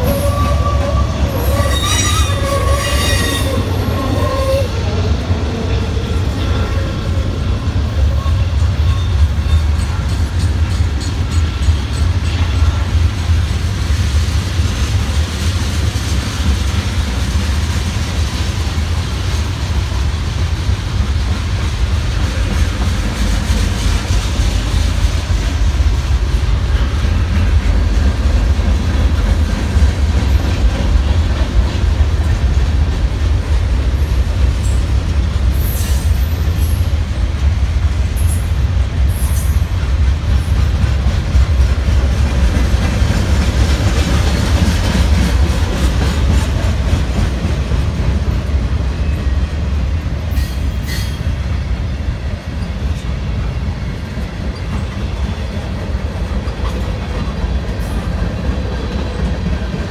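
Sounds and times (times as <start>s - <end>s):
high-pitched wheel squeaks: 0.0s - 4.7s
steel wheels rumbling on rail: 0.0s - 59.9s.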